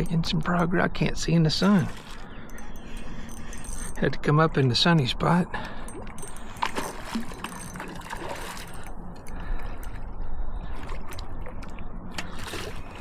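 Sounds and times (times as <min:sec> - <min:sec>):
fish splashing at water surface: 0:06.4 - 0:09.0.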